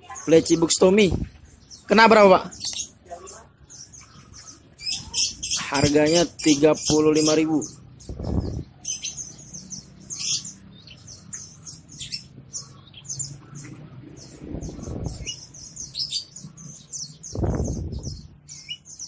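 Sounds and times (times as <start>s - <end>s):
songbirds chirping: 0.0s - 19.0s
low muffled rush: 7.8s - 8.8s, 13.4s - 15.5s, 17.3s - 18.4s.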